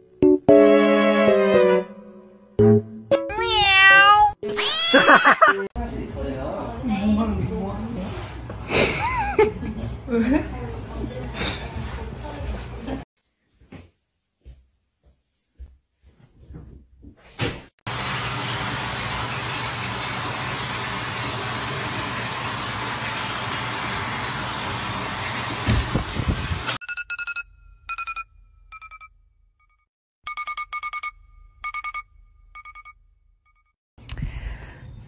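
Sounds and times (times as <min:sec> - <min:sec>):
high rhythmic beeping: 0:26.8 - 0:29.1, 0:29.7 - 0:33.7.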